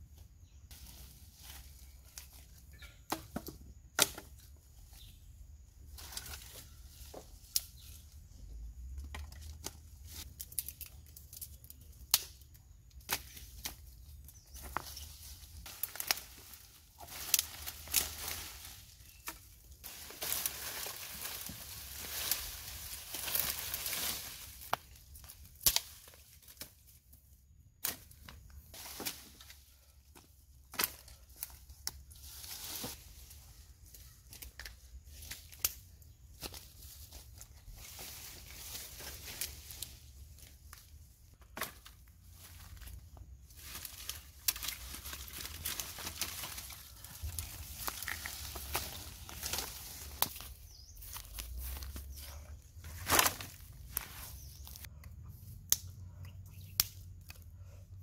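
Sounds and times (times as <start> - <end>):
leaves rustling: 0.4 - 2.8, 9.4 - 27.1, 27.8 - 55.5
plant stems snapping: 9.6 - 13.8, 15.6 - 18.5, 24.6 - 26.7, 34.3 - 35.8, 43.7 - 50.5, 55.0 - 57.4
wood snapping: 10.4 - 13.8, 25.6 - 26.7, 55.7 - 55.9, 56.7 - 57.4.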